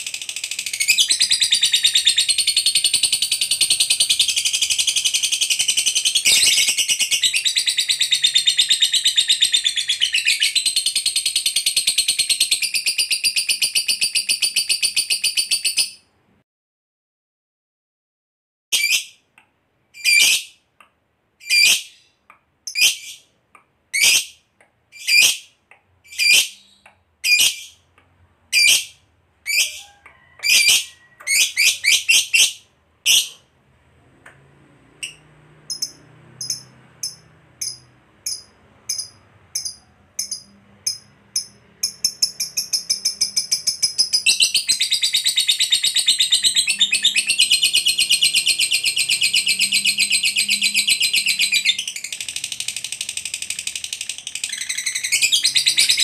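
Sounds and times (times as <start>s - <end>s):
lovebird shrill calls: 21.4s - 22.0s
lovebird rapid chattering trill: 35.0s - 56.0s.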